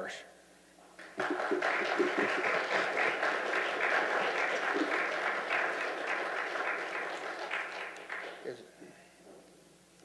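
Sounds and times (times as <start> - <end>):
congregation applauding: 1.0 - 8.6.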